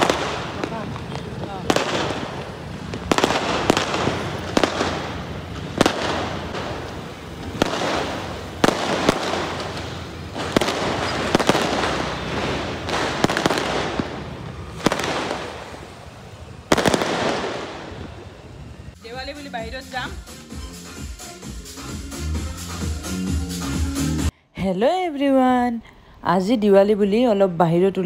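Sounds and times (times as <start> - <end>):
fireworks bangs: 0.0 - 19.0
fireworks crackling: 0.0 - 24.3.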